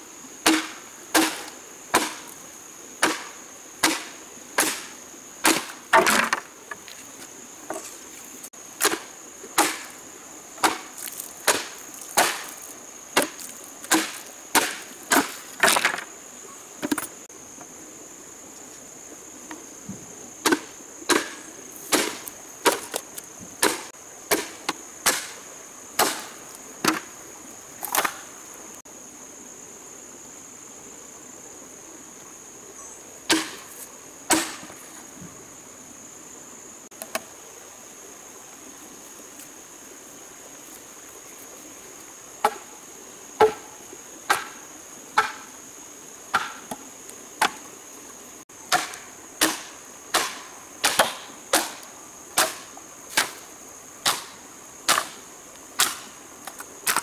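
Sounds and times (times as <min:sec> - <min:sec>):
high insect buzz: 0:00.0 - 0:57.0
machete chopping bamboo: 0:00.4 - 0:02.4, 0:03.0 - 0:06.5, 0:08.8 - 0:10.0, 0:10.6 - 0:12.6, 0:13.2 - 0:16.1, 0:20.4 - 0:25.4, 0:26.0 - 0:27.1, 0:33.3 - 0:33.7, 0:34.3 - 0:34.7, 0:42.4 - 0:42.7, 0:43.4 - 0:43.7, 0:44.3 - 0:44.6, 0:45.2 - 0:45.5, 0:46.3 - 0:46.8, 0:47.4 - 0:47.6, 0:48.7 - 0:53.4, 0:54.0 - 0:55.2, 0:55.8 - 0:57.0.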